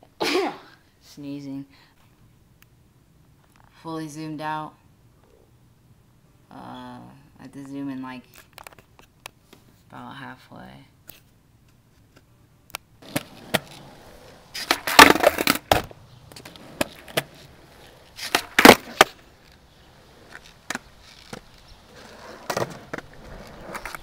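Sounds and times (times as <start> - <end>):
skateboard tail popping: 11.6 - 24.0
skateboard clacking on concrete: 13.0 - 24.0.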